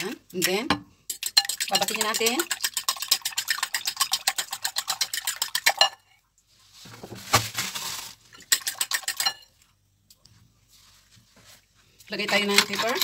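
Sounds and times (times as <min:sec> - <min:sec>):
fork clinking against glass bowl: 0:08.5 - 0:09.5.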